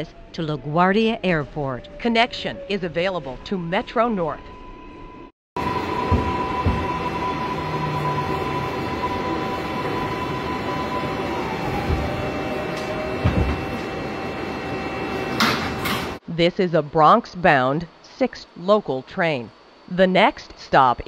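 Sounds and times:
train rumble and rail noise: 5.6s - 16.2s
low thumps: 5.8s - 7.3s.

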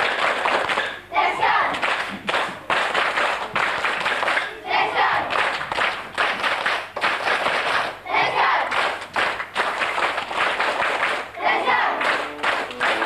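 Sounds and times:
children clapping hands: 0.0s - 13.0s
hubbub of voices: 0.7s - 5.5s, 7.9s - 8.7s, 11.3s - 13.0s
pitched notes: 11.6s - 13.0s.

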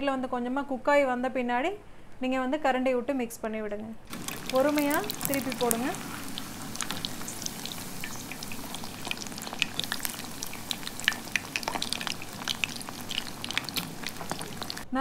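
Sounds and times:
food deep-frying in oil: 4.1s - 15.0s.

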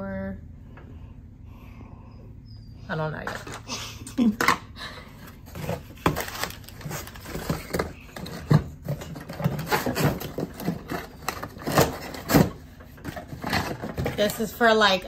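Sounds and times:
cardboard scraping: 5.3s - 14.6s.

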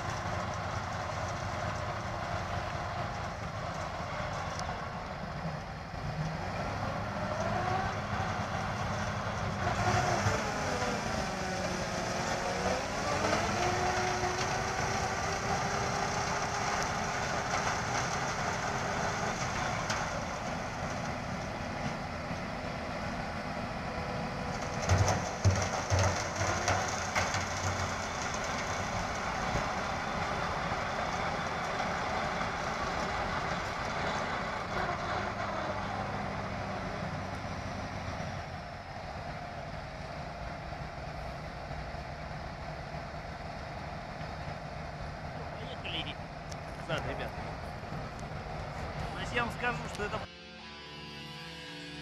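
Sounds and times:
snowblower churning snow: 0.0s - 41.4s
tractor diesel engine under load: 0.0s - 52.0s.

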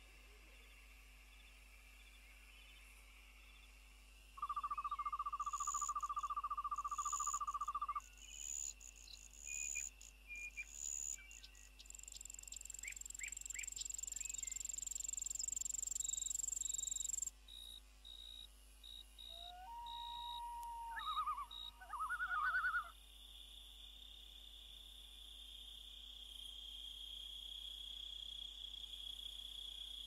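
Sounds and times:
fast-pulsing insect trill: 4.4s - 10.1s, 10.8s - 19.3s
short insect chirps: 4.4s - 30.0s.

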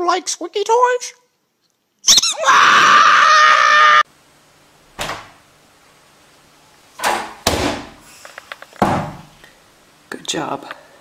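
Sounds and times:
squeaky toy squealing: 2.1s - 2.5s.

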